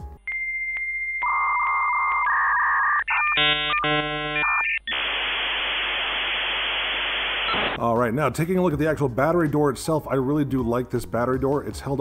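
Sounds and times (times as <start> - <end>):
static hiss: 4.0 - 7.8.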